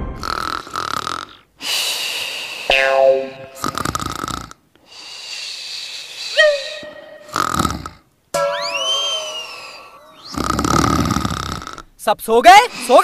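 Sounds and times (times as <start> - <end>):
cartoon snoring: 0.2 - 1.8, 3.2 - 4.6, 7.2 - 8.0, 9.4 - 11.9
whistle-like tones: 8.4 - 10.4.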